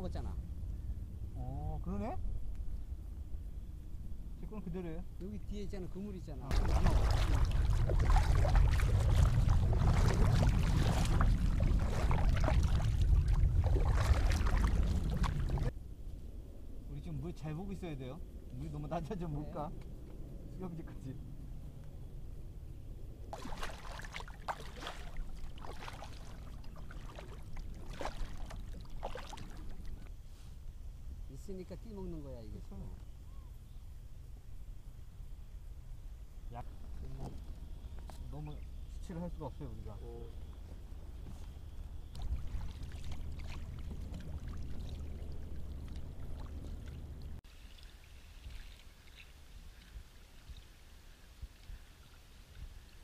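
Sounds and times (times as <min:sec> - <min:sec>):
low rumble: 0:06.4 - 0:23.4, 0:40.3 - 0:47.4
paddle splashing in water: 0:06.5 - 0:15.7, 0:23.3 - 0:30.1, 0:42.0 - 0:50.0
water trickling off paddle: 0:06.5 - 0:15.7, 0:23.3 - 0:30.1, 0:42.0 - 0:53.0.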